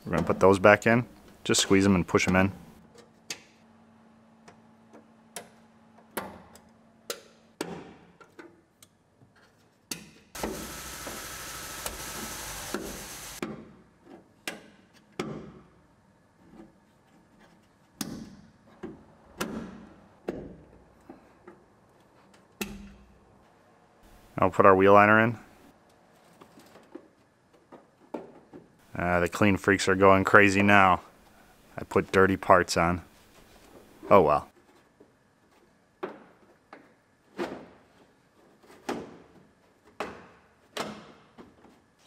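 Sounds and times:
steady hiss: 10.4s - 13.4s.

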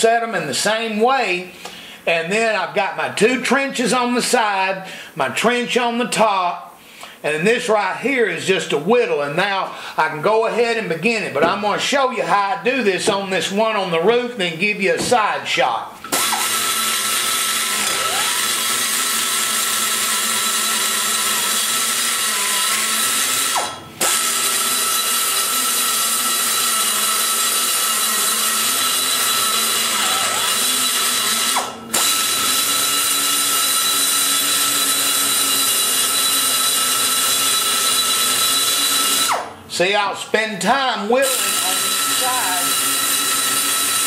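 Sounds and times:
die grinder whining: 16.0s - 40.0s, 41.1s - 44.0s.

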